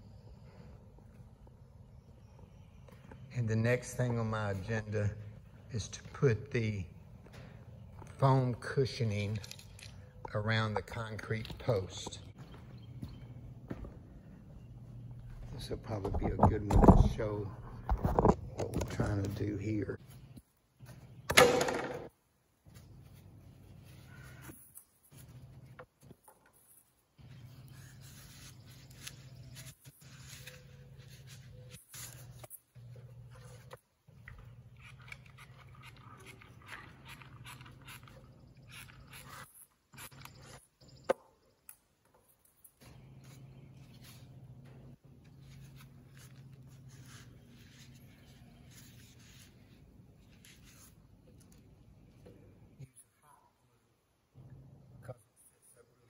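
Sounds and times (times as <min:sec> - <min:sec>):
handling noises of tools: 0:07.1 - 0:53.2
foam scratching and rubbing: 0:27.5 - 0:32.6, 0:45.4 - 0:51.0.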